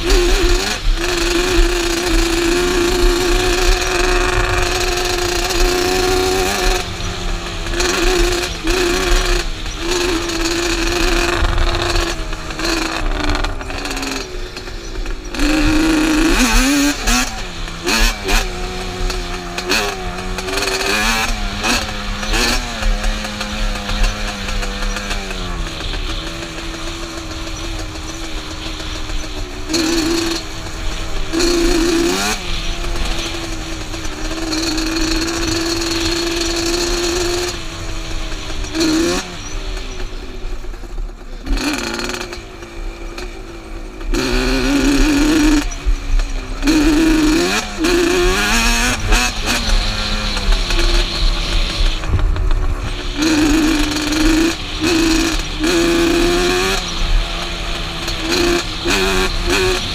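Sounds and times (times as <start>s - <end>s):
two-stroke engine revving: 0.0s - 59.9s.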